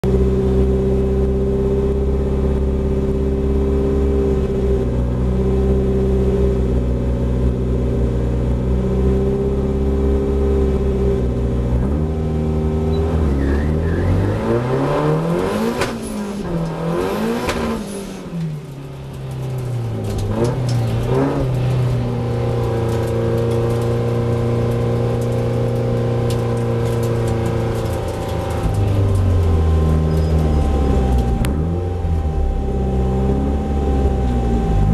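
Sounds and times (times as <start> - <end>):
race car engine revving: 8.9 - 34.9.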